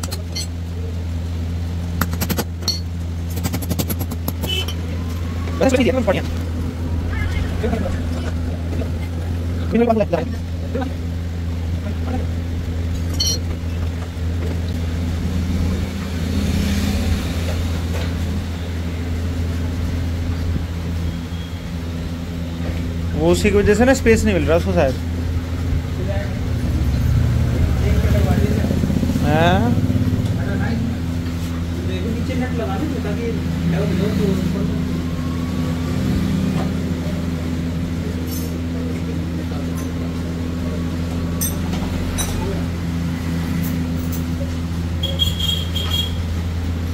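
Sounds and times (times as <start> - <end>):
vehicle engine humming: 0.0 - 46.9
light metallic clink: 13.0 - 13.5.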